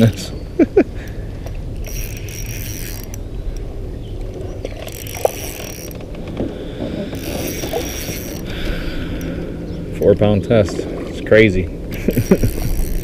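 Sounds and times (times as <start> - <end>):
fishing reel whirring: 1.0 - 10.3, 11.9 - 13.0.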